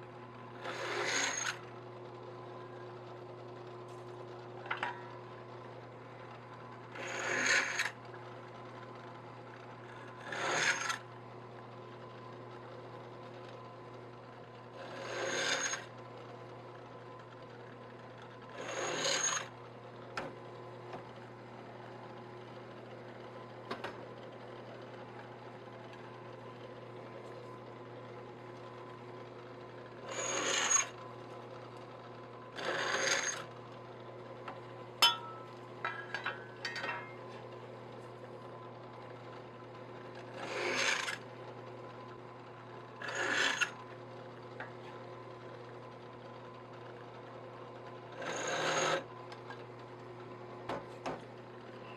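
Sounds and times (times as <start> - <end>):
drill press motor hum: 0.0 - 51.9
drill bit rasping through metal: 0.6 - 1.6, 7.0 - 7.9, 10.1 - 11.0, 14.8 - 15.9, 18.6 - 19.5, 30.0 - 31.0, 32.6 - 33.5, 40.4 - 41.2, 43.0 - 43.8, 48.2 - 49.1.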